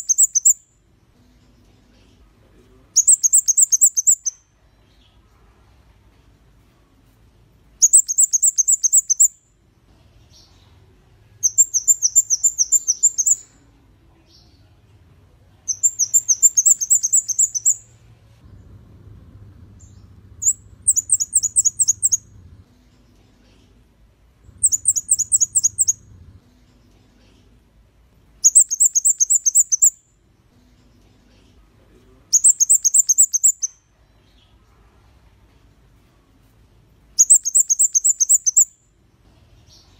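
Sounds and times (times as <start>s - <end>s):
bird singing high rapid trills: 0.0s - 0.7s, 3.0s - 4.5s, 7.8s - 9.5s, 11.4s - 13.5s, 15.7s - 17.9s, 19.7s - 22.5s, 24.5s - 26.2s, 28.4s - 30.1s, 32.3s - 34.3s, 37.2s - 38.8s.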